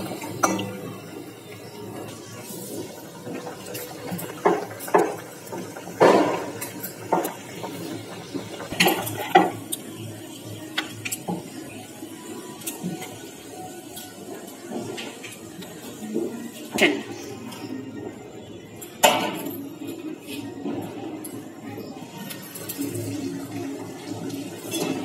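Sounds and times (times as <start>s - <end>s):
utensils clinking: 22.1s - 25.0s.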